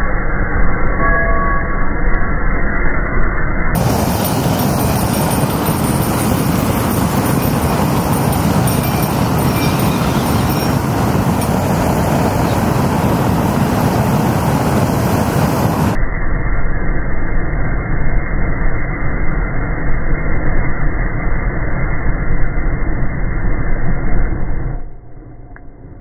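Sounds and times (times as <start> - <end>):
flamethrower fire rushing: 3.8 - 16.0.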